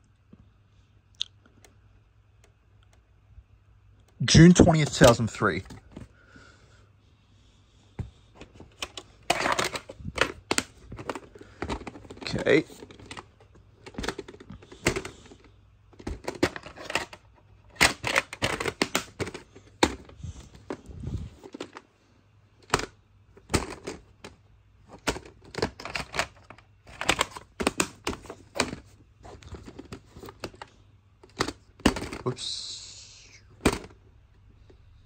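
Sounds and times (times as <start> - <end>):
plastic cases clacking: 4.6 - 6.2, 8.0 - 21.9, 22.6 - 32.4, 33.5 - 34.0.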